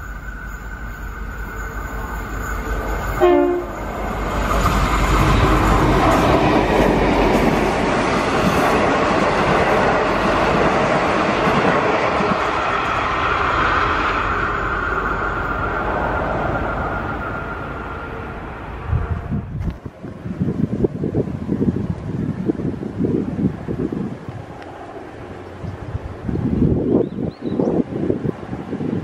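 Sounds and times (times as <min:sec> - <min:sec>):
train carriages clattering on rails: 0:01.4 - 0:12.8
train horn blast: 0:03.1 - 0:03.9, 0:17.3 - 0:19.6.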